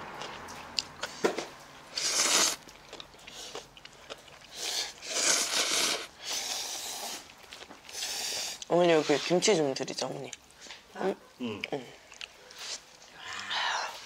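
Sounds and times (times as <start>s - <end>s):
noodles slurped: 1.9s - 9.4s.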